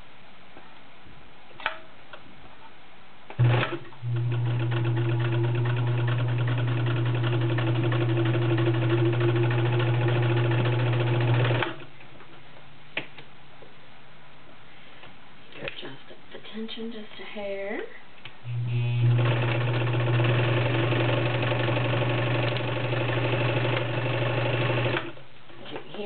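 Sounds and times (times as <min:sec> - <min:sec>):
sewing machine sewing: 0:03.4 - 0:11.9, 0:18.7 - 0:25.2.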